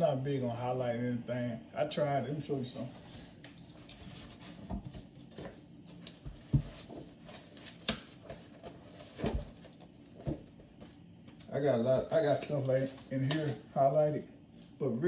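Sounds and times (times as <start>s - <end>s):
books and papers rustling: 2.6s - 11.4s, 12.2s - 13.8s.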